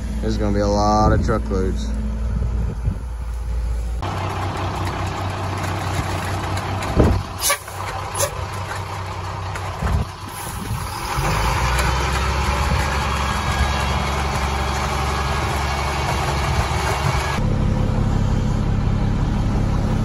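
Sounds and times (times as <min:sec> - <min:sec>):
diesel truck engine running: 0:00.0 - 0:20.0.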